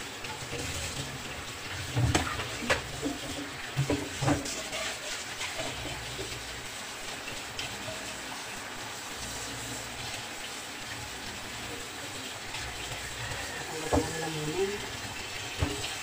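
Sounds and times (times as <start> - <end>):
tap running into sink: 0.3 - 6.4, 12.8 - 14.3, 15.0 - 16.0.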